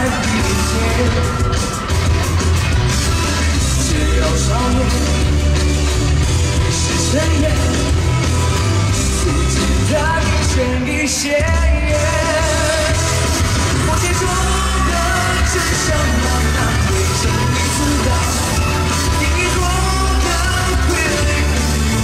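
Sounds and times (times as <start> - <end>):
live pop-rock song with singer: 0.0 - 22.0.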